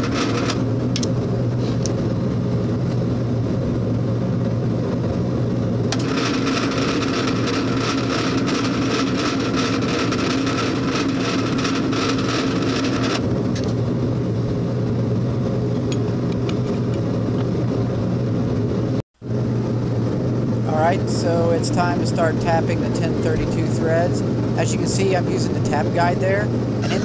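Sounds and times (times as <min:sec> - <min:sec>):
drill press motor humming: 0:00.0 - 0:01.2, 0:05.9 - 0:13.8.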